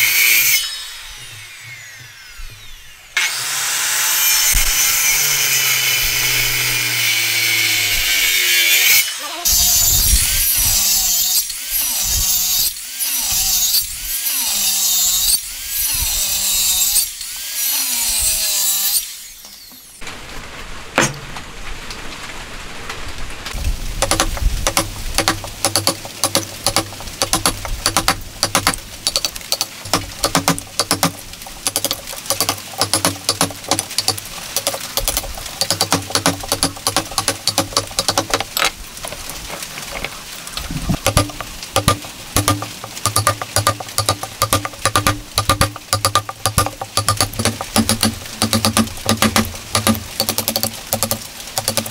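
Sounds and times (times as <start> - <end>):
circular saw cutting wood: 0.0 - 20.0, 24.0 - 38.7, 41.0 - 51.9
mallet striking chisel: 24.0 - 38.5, 41.0 - 51.9.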